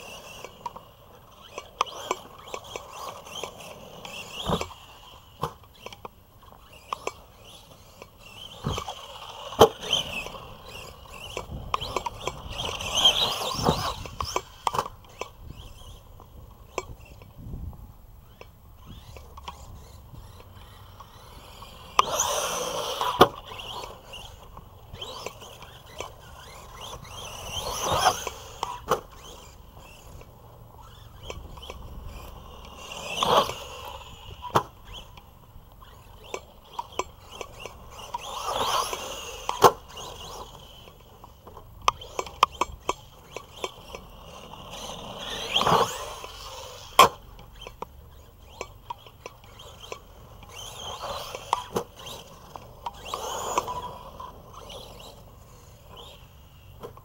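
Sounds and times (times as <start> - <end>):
rc truck knocking on landings: 0.0 - 17.3, 18.3 - 35.2
rc truck motor whining: 0.0 - 57.0.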